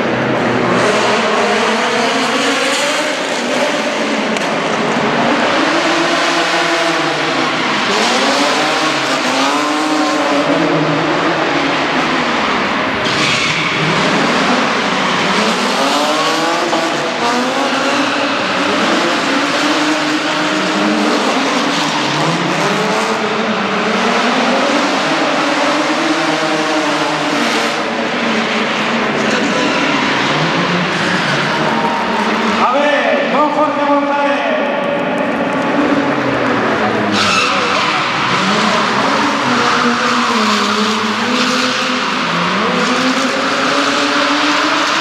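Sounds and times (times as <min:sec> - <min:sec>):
car engine revving hard: 0:00.0 - 0:32.7, 0:35.2 - 0:45.0
tyre squeal: 0:37.1 - 0:42.7.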